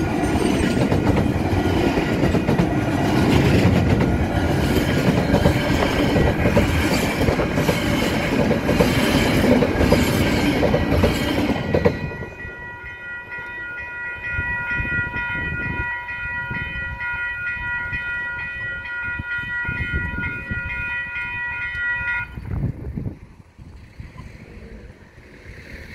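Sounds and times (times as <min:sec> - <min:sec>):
freight wagons rolling on rails: 0:00.0 - 0:13.7
level crossing bells ringing: 0:11.6 - 0:22.4.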